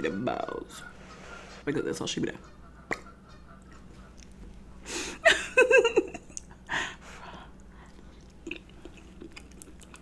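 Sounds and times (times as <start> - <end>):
wet chewing clicks: 2.9 - 4.7, 6.2 - 6.7, 7.3 - 10.0.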